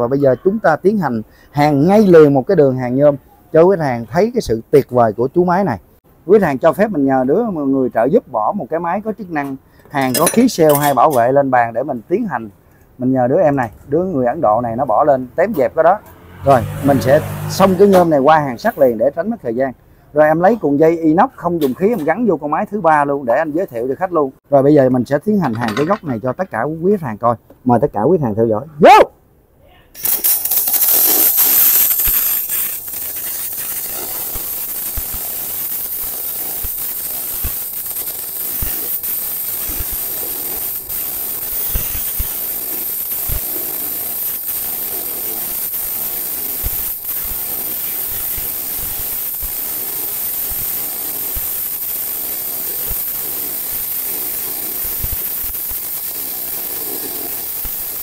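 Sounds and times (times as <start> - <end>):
welding arc crackling hiss: 8.7 - 12.3, 16.5 - 19.4, 30.0 - 58.0.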